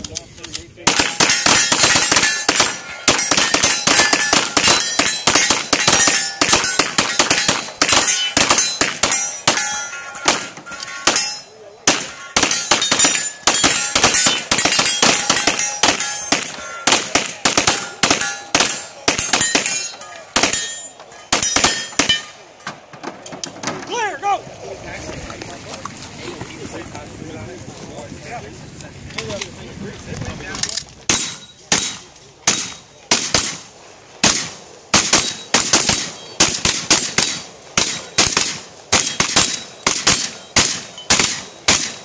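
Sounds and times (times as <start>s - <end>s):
pistol shots: 0.8s - 22.4s, 31.1s - 42.0s
steel targets clanging: 0.9s - 24.2s, 31.1s - 33.6s, 34.2s - 42.0s.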